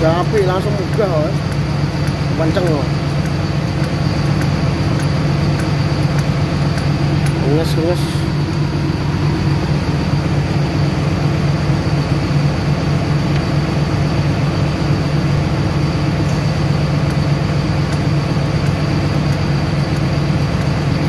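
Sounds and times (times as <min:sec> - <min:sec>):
excavator diesel engine running: 0:00.0 - 0:21.0.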